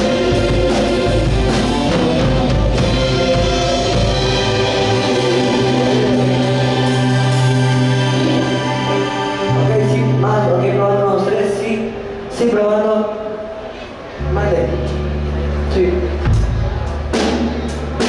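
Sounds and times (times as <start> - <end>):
drum strokes: 0.0 - 10.3
held low chord: 0.0 - 12.4, 13.6 - 18.0
live band playing amplified music: 0.0 - 18.0.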